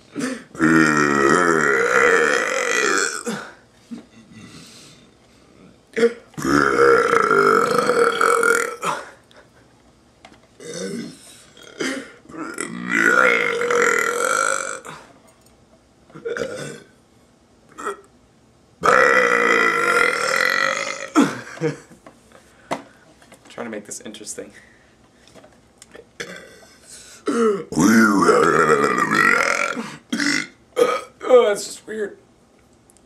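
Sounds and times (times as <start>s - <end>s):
man burping: 0.2s - 3.6s, 5.9s - 9.2s, 10.6s - 15.1s, 16.1s - 16.9s, 17.7s - 18.1s, 18.8s - 21.9s, 26.2s - 31.4s.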